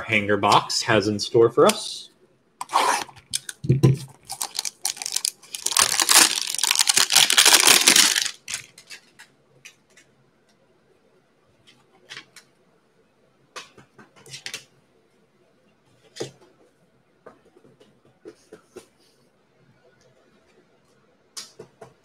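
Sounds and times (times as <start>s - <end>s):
cardboard tearing and crinkling: 4.2s - 8.7s.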